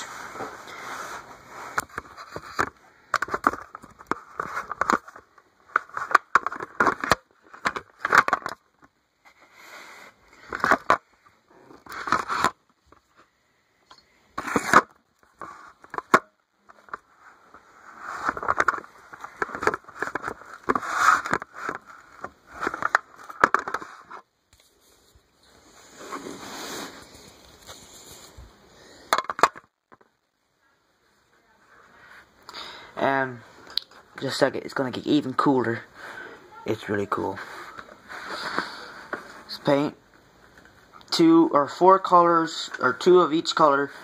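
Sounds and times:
handling noise crackling and scraping: 0:00.0 - 0:30.2, 0:36.7 - 0:41.0.

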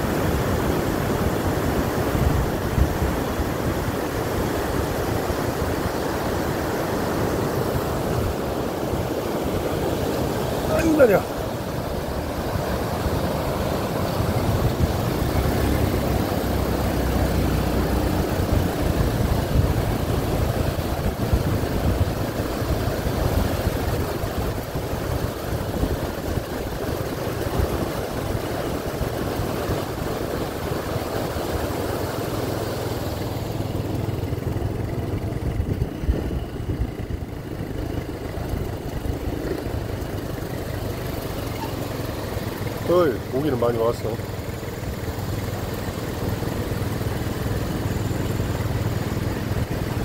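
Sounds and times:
wind rumbling on microphone: 0:00.0 - 0:32.2, 0:33.2 - 0:41.7
river rushing: 0:00.0 - 0:36.1, 0:37.2 - 0:50.0.

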